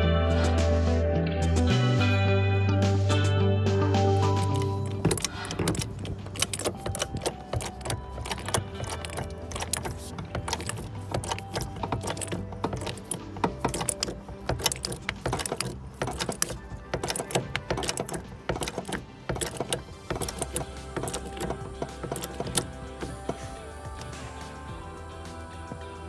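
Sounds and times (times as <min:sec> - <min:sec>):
background music: 0:00.0 - 0:26.0
hydraulic jack clicking: 0:04.3 - 0:24.1.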